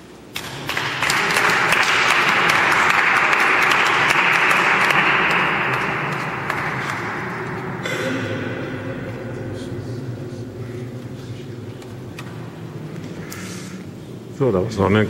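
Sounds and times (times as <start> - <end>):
audience applauding: 0.4 - 8.8.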